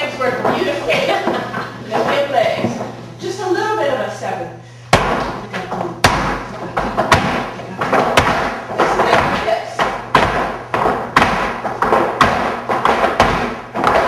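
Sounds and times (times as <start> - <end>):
dance shoes stamping on wooden floor: 4.9 - 14.0.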